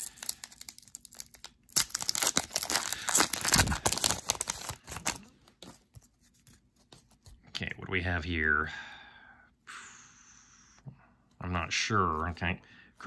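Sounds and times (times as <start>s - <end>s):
foil wrapper tearing and crinkling: 0.0s - 5.3s.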